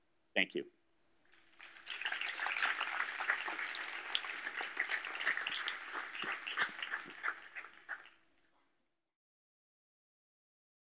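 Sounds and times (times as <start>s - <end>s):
audience applauding: 1.4s - 8.2s.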